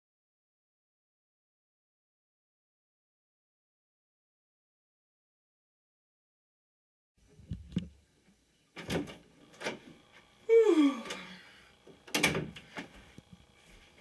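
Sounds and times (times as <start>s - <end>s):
boy groaning: 10.5s - 11.5s.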